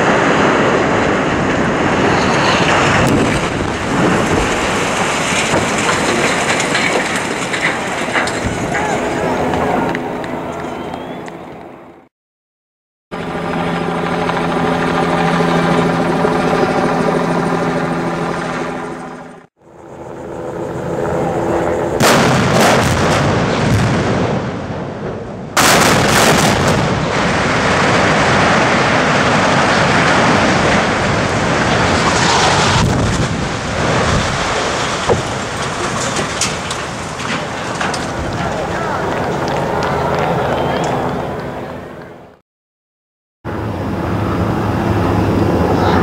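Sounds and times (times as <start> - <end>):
demolition charges cracking: 0.0 - 10.0, 25.6 - 41.2
rumble of collapsing buildings: 0.0 - 11.1, 21.4 - 42.3
heavy blast: 22.0 - 40.2.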